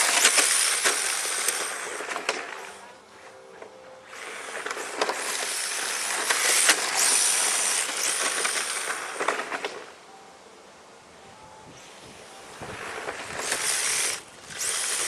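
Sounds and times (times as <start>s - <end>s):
high motor whine: 0.0s - 15.0s
rc car tyres hissing on asphalt: 12.6s - 15.0s.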